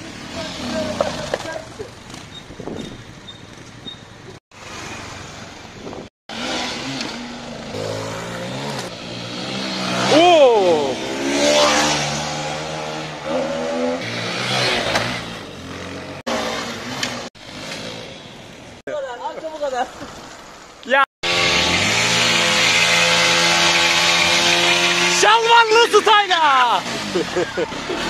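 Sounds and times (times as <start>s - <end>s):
small motorcycle engine revving: 0.0s - 3.6s, 6.3s - 18.3s, 21.2s - 25.6s, 26.6s - 28.0s.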